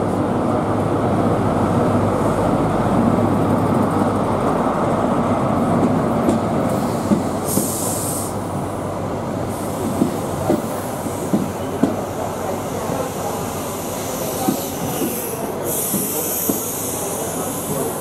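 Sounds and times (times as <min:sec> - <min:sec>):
train coaches rolling by: 0:00.0 - 0:18.0
train diesel engine passing: 0:00.0 - 0:18.0
brief high hiss: 0:06.8 - 0:08.4.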